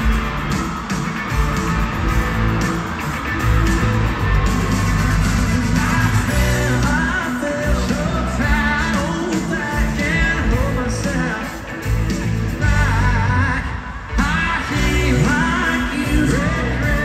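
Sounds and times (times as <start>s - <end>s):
bass: 0.0s - 17.0s
drums: 0.0s - 17.0s
person singing: 5.5s - 11.9s, 12.5s - 17.0s.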